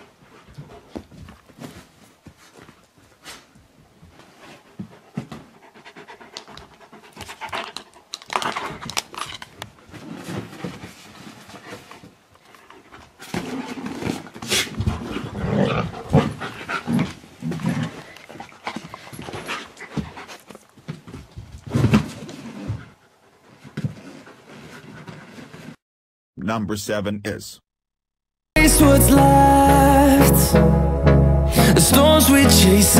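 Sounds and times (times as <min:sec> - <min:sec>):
dog panting: 0:04.3 - 0:08.8, 0:15.9 - 0:17.2, 0:17.9 - 0:20.6.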